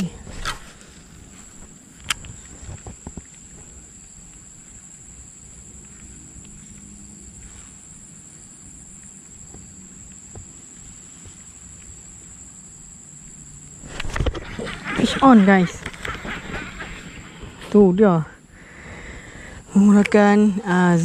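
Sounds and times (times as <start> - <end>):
faint ticks: 2.0 - 12.1.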